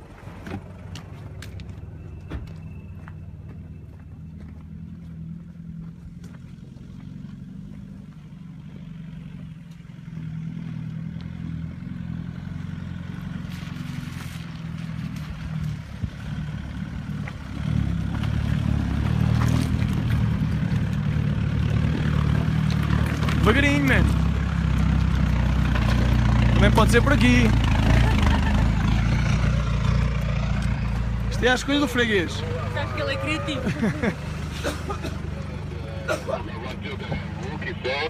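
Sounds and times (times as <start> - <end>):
diesel engine at low revs: 0.0 - 38.0
stones crunching under tyres: 13.1 - 28.4.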